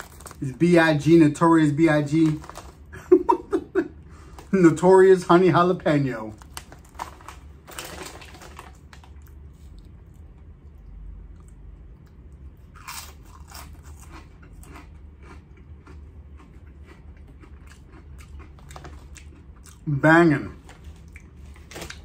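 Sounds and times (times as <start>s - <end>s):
potato chip crunching: 0.0s - 2.9s, 4.3s - 10.0s, 12.6s - 22.0s
low steady hum: 0.0s - 22.0s.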